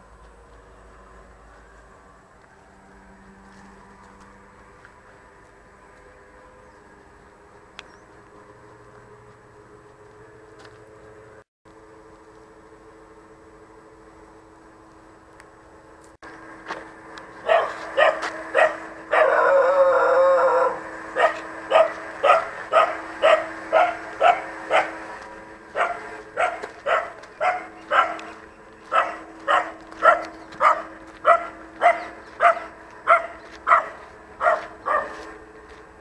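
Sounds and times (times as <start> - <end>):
dog barking: 17.4 - 19.6, 21.2 - 25.0, 25.7 - 28.3, 28.9 - 35.2
dog wavering call: 17.4 - 25.0.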